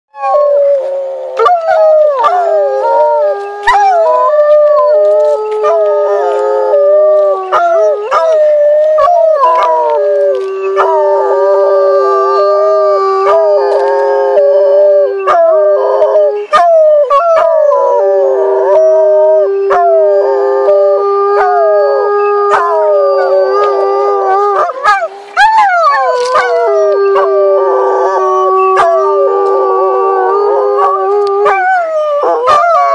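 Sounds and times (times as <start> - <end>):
canines howling: 0.2 - 32.9.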